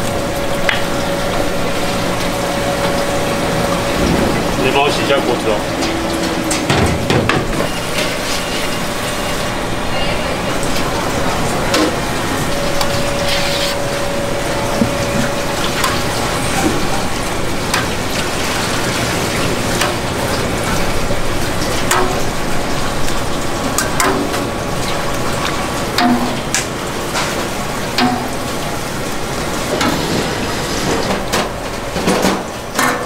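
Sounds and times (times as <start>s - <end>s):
steady rushing background noise: 0.0s - 16.6s.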